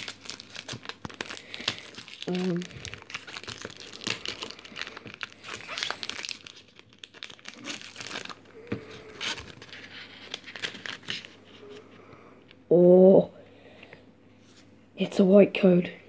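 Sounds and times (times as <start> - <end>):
foil wrapper crinkling and tearing: 0.0 - 11.8.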